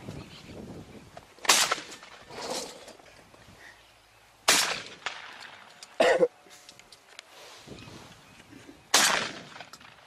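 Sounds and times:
shotgun shot: 0:01.4 - 0:02.2, 0:04.5 - 0:05.6, 0:08.9 - 0:10.0.

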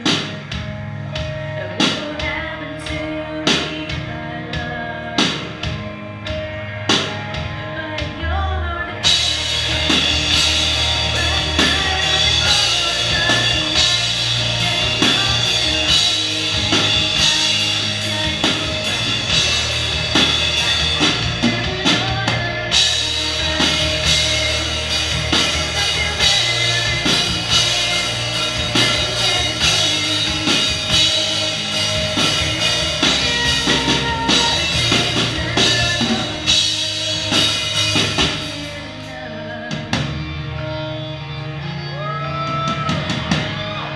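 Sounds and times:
loud electric guitar: 0:00.0 - 0:43.9
drum kit beat: 0:09.0 - 0:39.2.

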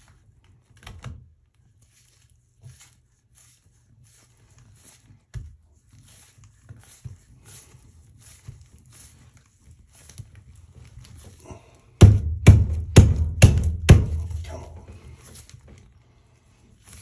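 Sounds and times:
faint rubbing and scraping: 0:01.5 - 0:12.0, 0:14.0 - 0:17.0
heavy thumps on plastic flange: 0:12.0 - 0:14.5.

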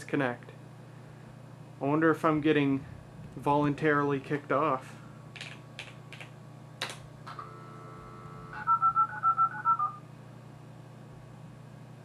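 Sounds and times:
dial tone: 0:07.3 - 0:10.0
touch-tone digits: 0:07.5 - 0:10.0.

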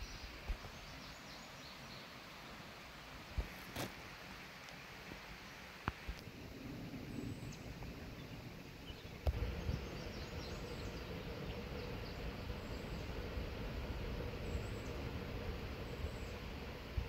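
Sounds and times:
faint steady hum: 0:00.0 - 0:17.0
low microphone rumble: 0:06.3 - 0:17.0.

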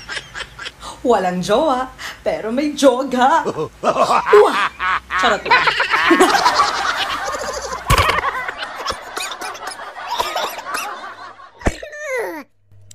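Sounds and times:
woman laughing: 0:03.3 - 0:12.4.

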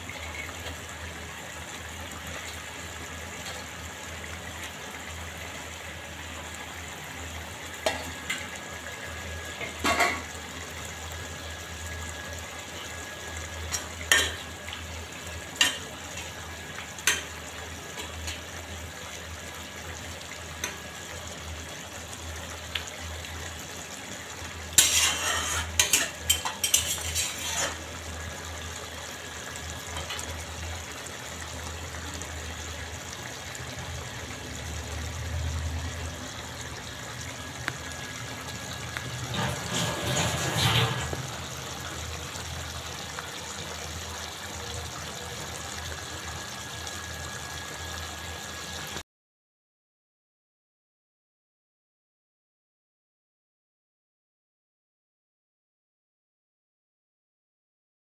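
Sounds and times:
curry simmering and bubbling: 0:00.0 - 0:49.0
spatula knocking and scraping pan: 0:24.8 - 0:27.8.

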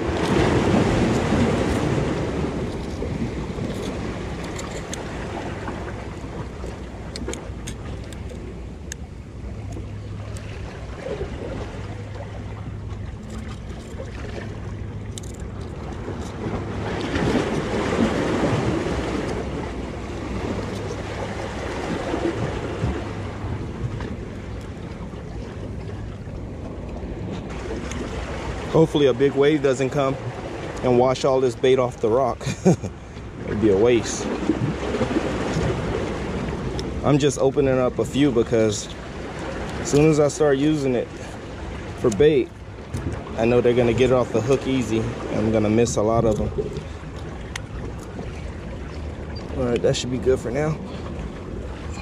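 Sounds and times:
waves washing against rocks: 0:00.0 - 0:06.6, 0:15.2 - 0:24.2.

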